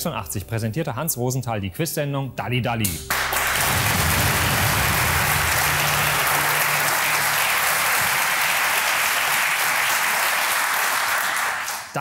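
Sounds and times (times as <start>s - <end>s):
studio audience applauding: 3.1s - 12.0s.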